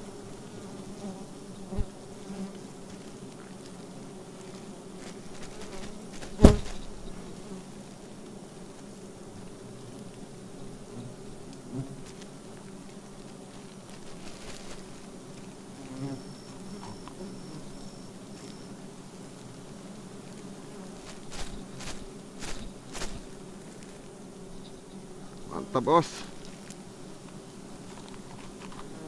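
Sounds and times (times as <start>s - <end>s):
bees buzzing: 0.0s - 29.0s.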